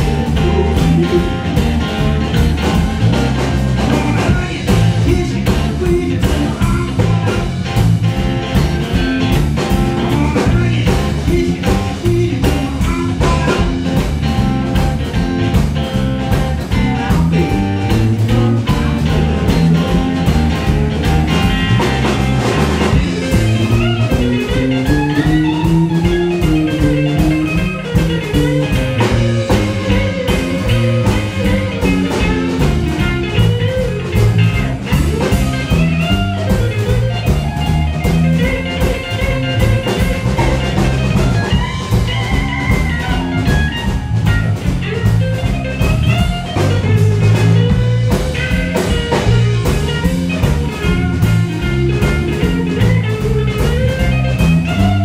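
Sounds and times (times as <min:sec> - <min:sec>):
bass guitar: 0:00.0 - 0:55.0
drum kit beat: 0:00.0 - 0:55.0
electric guitar: 0:00.0 - 0:55.0.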